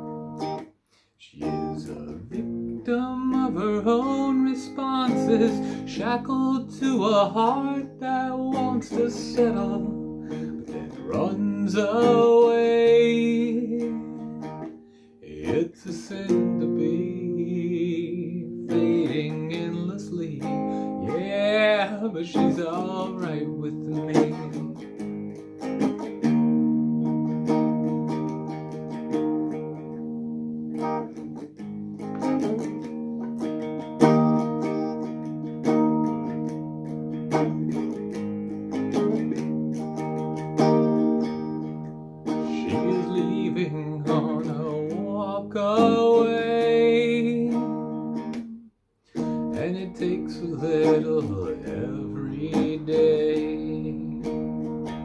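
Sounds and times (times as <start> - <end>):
electric guitar strumming chords: 0.0 - 55.0.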